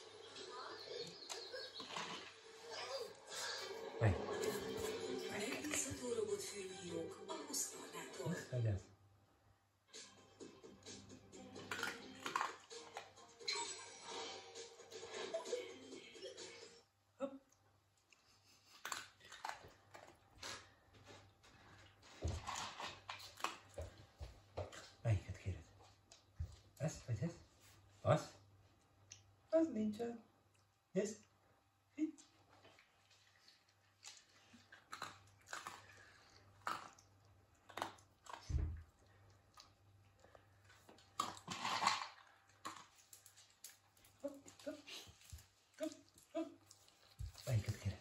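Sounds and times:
dog crunching dry food: 11.6s - 13.1s, 18.8s - 25.0s, 34.0s - 38.5s, 39.6s - 48.0s.

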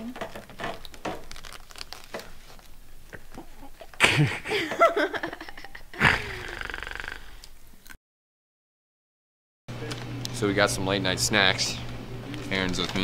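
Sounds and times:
plastic snack bag crinkling: 0.0s - 3.4s, 12.4s - 13.0s
young woman laughing loudly: 3.6s - 6.8s.

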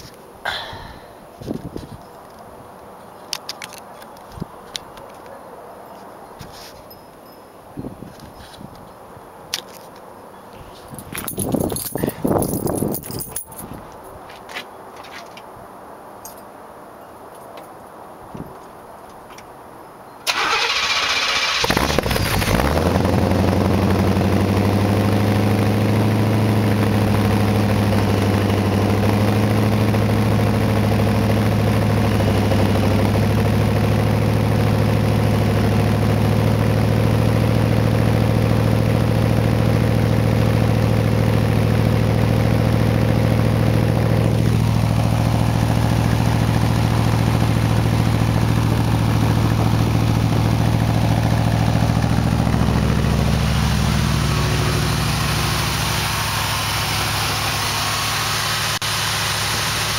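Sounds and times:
car engine idling loudly: 21.7s - 59.9s.

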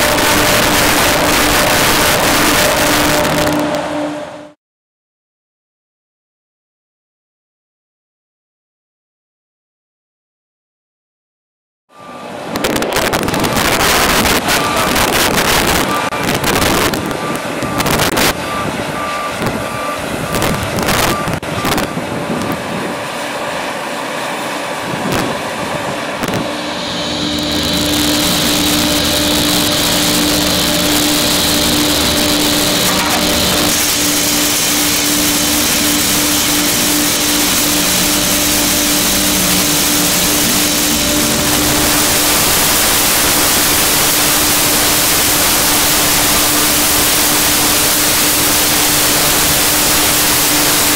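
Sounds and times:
vehicle noise: 0.0s - 4.6s, 12.0s - 50.9s
wind: 11.9s - 50.9s
repeated beeping: 12.0s - 22.0s
welder hissing and humming: 26.3s - 50.9s.

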